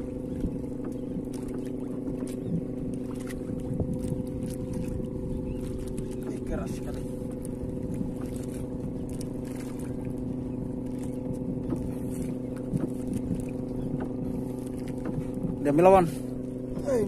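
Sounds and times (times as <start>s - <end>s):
small boat engine running: 0.0s - 17.0s
faint clicks and knocks: 0.4s - 4.0s, 8.2s - 15.7s.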